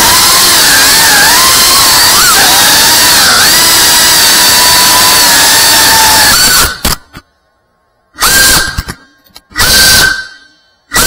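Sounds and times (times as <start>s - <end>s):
drone motors whining: 0.0s - 6.8s.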